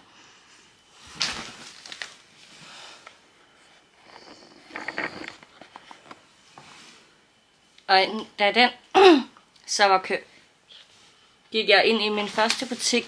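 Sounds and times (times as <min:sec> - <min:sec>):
rustling and handling noise: 0:00.6 - 0:07.8, 0:12.1 - 0:13.0.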